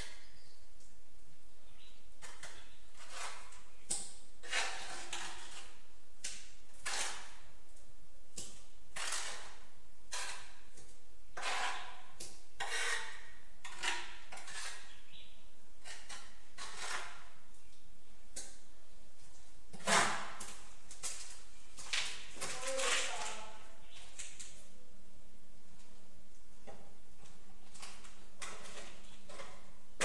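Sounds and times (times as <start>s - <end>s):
trowel scraping tile mortar: 2.2s - 7.5s, 8.4s - 15.1s, 15.8s - 17.6s, 19.7s - 21.4s, 27.7s - 29.8s.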